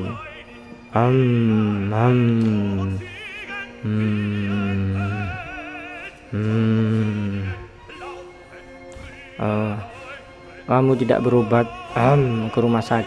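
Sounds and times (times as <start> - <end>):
high wavering vocal line: 0.0 - 13.0
slow singing with vibrato: 0.0 - 13.0.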